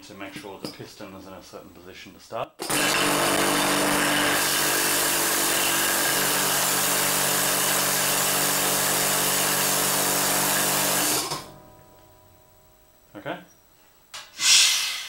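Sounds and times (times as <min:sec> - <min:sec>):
air compressor pump running: 0:02.6 - 0:11.6.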